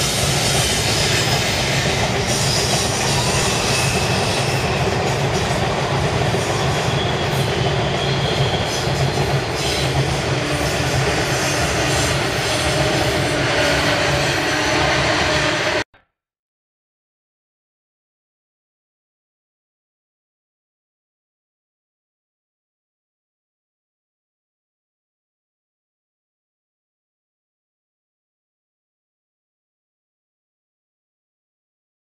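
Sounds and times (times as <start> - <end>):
high wheel squeal: 0.0 - 4.9, 6.4 - 15.8
clickety-clack of wheels: 0.0 - 15.8
train wheels rumbling on rail: 0.0 - 15.8.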